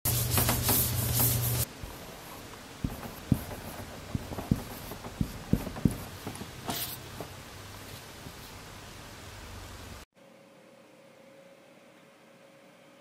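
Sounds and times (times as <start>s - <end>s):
pen scratching on paper: 0.4s - 7.0s.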